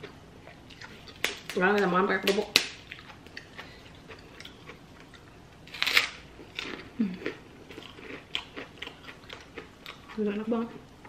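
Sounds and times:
crunchy chewing: 2.8s - 10.8s.

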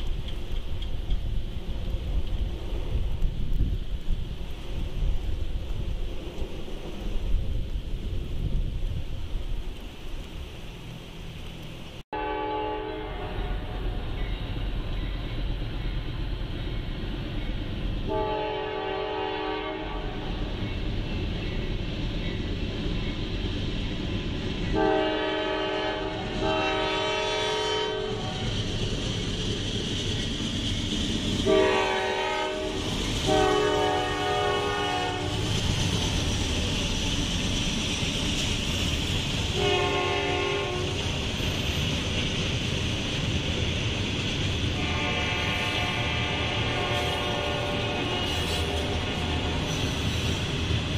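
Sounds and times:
train wheels rumbling on rails: 0.0s - 50.9s
locomotive air horn blasts: 12.2s - 14.0s, 18.1s - 20.2s, 24.8s - 28.4s, 31.4s - 35.4s, 39.6s - 40.9s, 44.8s - 49.7s.

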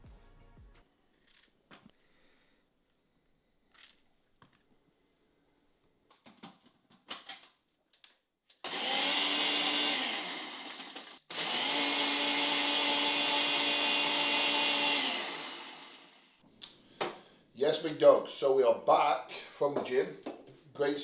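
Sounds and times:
blender blending ice: 8.6s - 16.4s.

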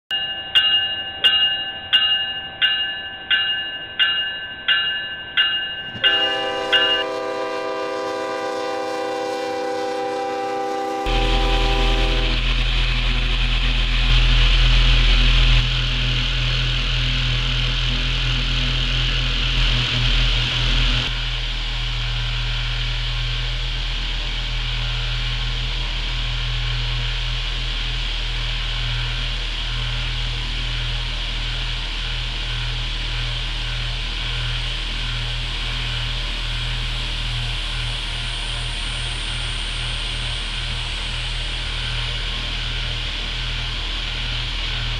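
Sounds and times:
train bell ringing: 0.1s - 7.8s
multi-note air horn chord: 6.0s - 12.6s
model train electrical hum: 6.0s - 44.9s.

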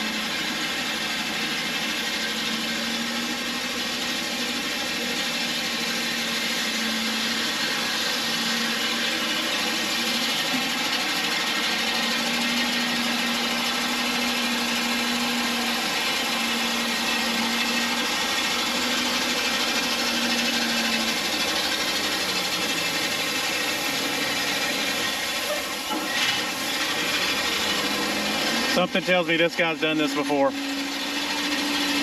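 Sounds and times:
truck engine: 0.0s - 32.0s.

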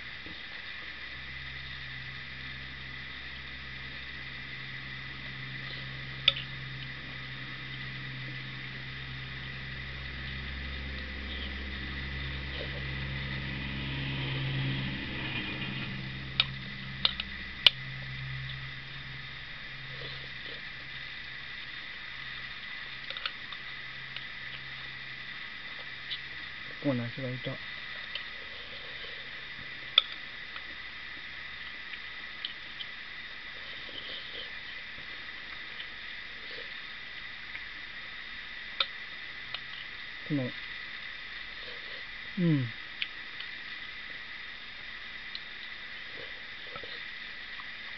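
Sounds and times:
steady high hiss: 0.0s - 47.9s
steady low hum: 0.0s - 47.9s
soft mouth noises: 42.4s - 42.8s.

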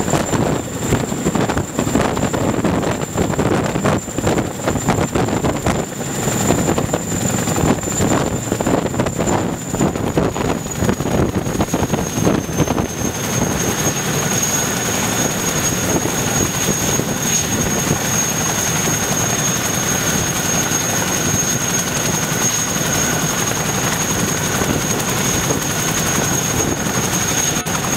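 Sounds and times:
helicopter rotor noise: 0.0s - 27.9s
high turbine whine: 0.0s - 27.9s.

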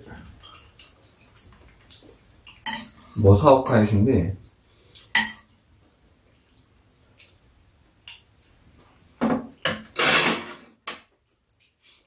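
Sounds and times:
spoons clicking against bowls: 0.4s - 3.2s.

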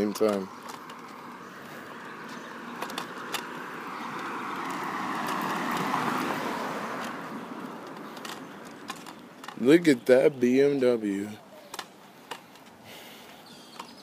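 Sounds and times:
car passing: 0.0s - 13.4s
sharp clicks: 13.7s - 14.0s.

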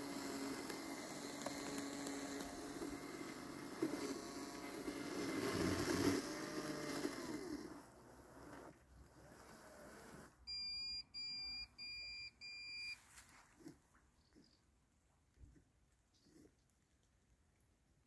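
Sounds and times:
robot lawn mower motor whine: 0.0s - 10.4s.

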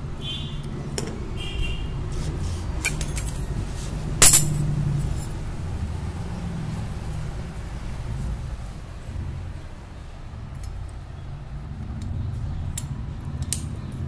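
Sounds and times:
metal parts clinking on concrete: 2.8s - 3.5s, 4.2s - 5.4s.

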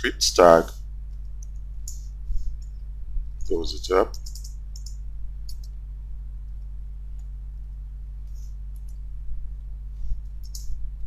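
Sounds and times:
steady low hum: 0.0s - 11.0s
computer keys and mouse clicks: 4.1s - 5.8s, 10.4s - 10.8s.

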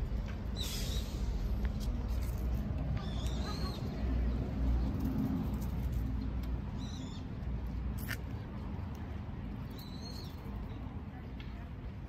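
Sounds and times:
sparrow chirps: 3.0s - 5.1s, 6.2s - 7.4s, 9.7s - 10.9s.

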